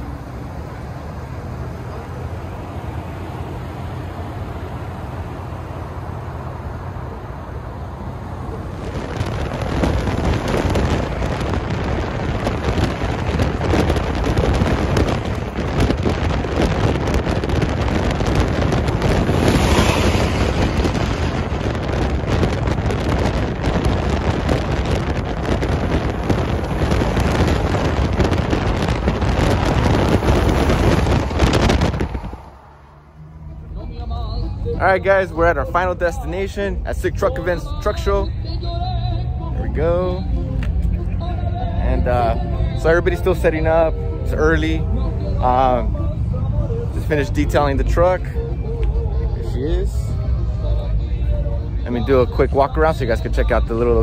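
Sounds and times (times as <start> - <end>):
road noise at high speed: 0.0 - 54.0
vehicle rumble: 0.0 - 54.0
wind buffeting microphone: 8.6 - 32.7.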